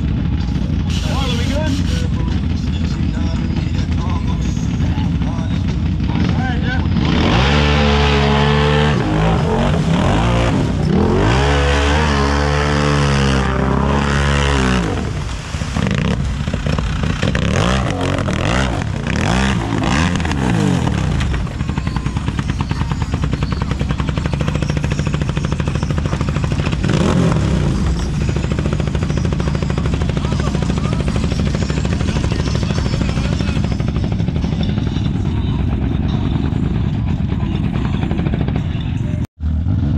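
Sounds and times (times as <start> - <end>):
racing engine revving: 6.0 - 36.2.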